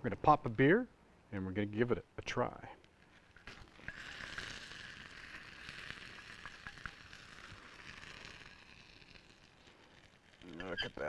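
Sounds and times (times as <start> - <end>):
oil sizzling in hot dish: 3.2 - 11.0.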